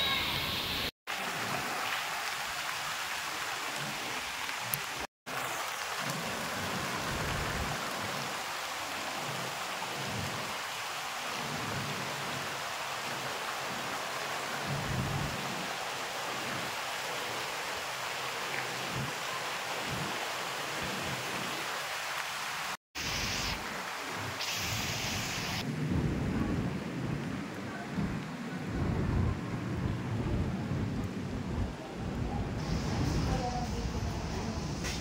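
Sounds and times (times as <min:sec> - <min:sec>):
falling water rushing: 0:00.0 - 0:25.7.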